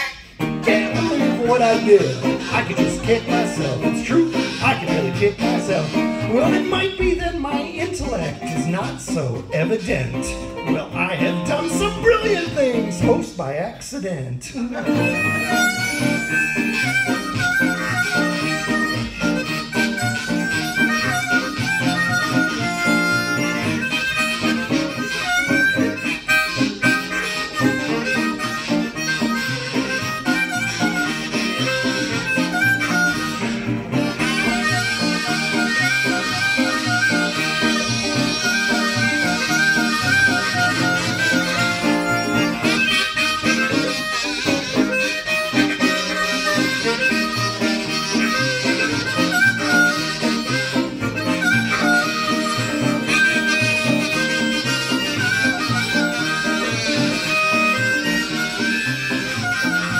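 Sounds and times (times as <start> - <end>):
blues harmonica playing lead: 0.0 - 59.9
guitar accompaniment: 0.0 - 59.9.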